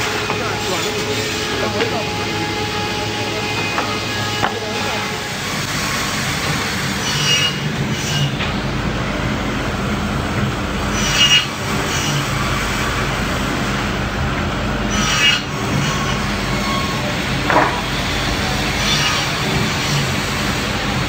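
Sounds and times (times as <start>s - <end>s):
saw screeching through wood: 0.0s - 8.4s, 10.9s - 12.4s, 14.9s - 20.3s
cutting machine humming: 0.0s - 21.0s.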